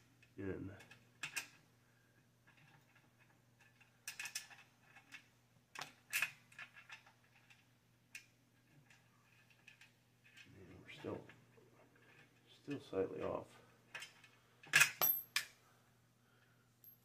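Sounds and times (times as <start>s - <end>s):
steel bolt clicking and scraping: 2.5s - 10.5s.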